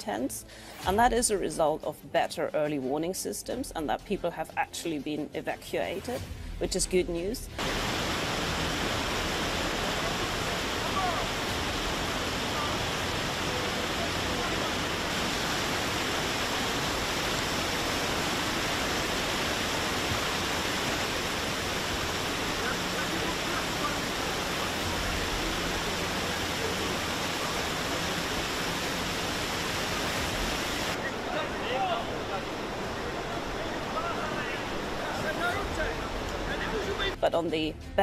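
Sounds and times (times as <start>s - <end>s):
floodwater rushing: 7.6s - 37.2s.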